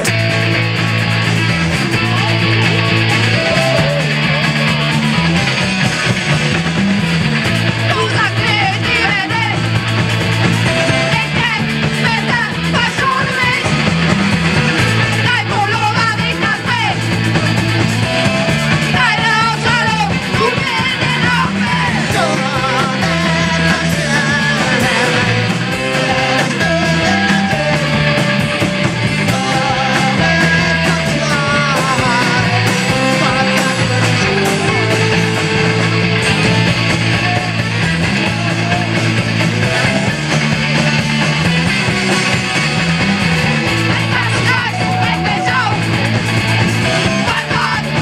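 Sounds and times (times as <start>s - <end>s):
bass guitar: 0.0s - 48.0s
drums: 0.0s - 48.0s
electric guitar: 0.0s - 48.0s
person singing: 2.0s - 4.7s, 18.9s - 37.5s, 43.9s - 46.2s, 46.8s - 48.0s.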